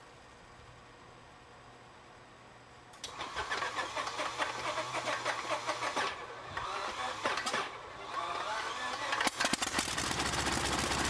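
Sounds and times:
aircraft engine cranking: 0:03.0 - 0:11.0.

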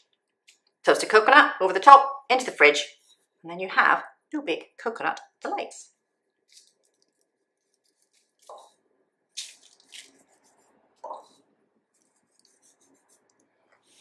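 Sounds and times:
coconut sprinkling on tray: 0:06.5 - 0:08.7, 0:09.4 - 0:11.3.

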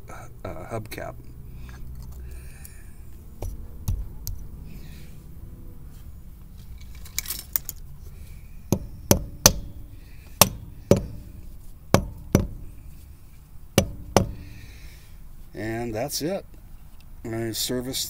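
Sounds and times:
light metallic clinks: 0:06.7 - 0:07.9
rubber mallet knocking on metal: 0:08.7 - 0:09.8, 0:10.4 - 0:11.3, 0:11.9 - 0:12.7, 0:13.8 - 0:14.4.

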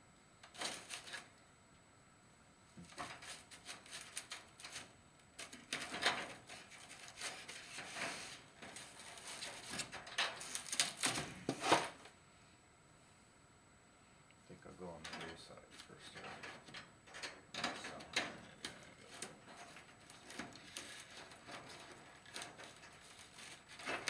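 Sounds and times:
wire mesh rustling and scraping: 0:02.8 - 0:11.9, 0:15.1 - 0:24.0.

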